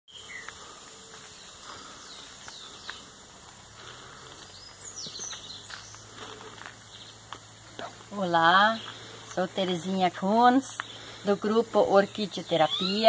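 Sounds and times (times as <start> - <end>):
birds whistling: 12.1 - 13.0.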